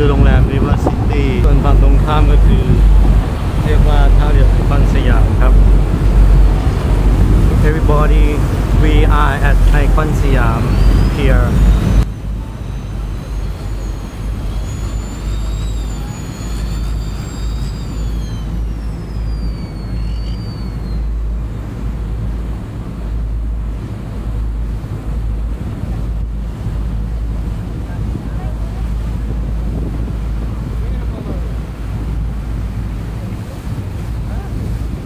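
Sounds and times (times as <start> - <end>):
high whine: 0.0 - 27.6
boat engine rumbling: 0.0 - 35.0
water: 0.0 - 35.0
wind noise: 0.0 - 35.0.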